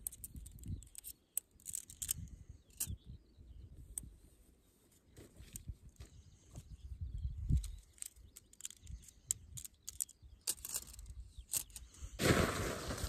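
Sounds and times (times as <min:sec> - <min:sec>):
tent poles clicking and tapping: 0:00.0 - 0:03.0, 0:07.5 - 0:11.8.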